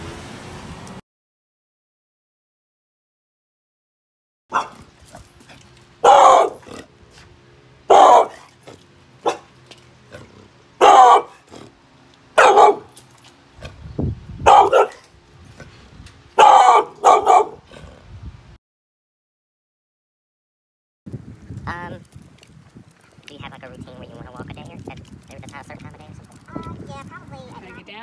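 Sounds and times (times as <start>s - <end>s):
dog barking: 4.5s - 4.9s, 6.0s - 6.9s, 7.9s - 8.5s, 9.2s - 9.5s, 10.8s - 11.5s, 12.4s - 13.0s, 14.4s - 15.1s, 16.4s - 17.6s.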